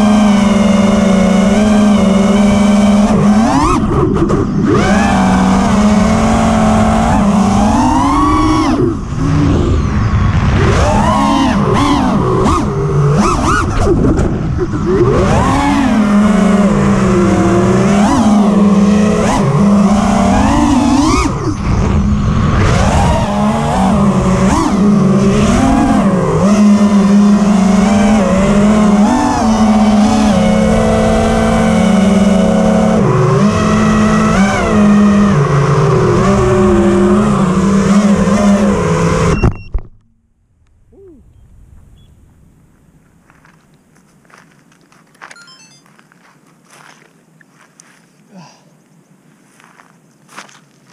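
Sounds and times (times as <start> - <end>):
drone motors whining: 0.0 - 40.0.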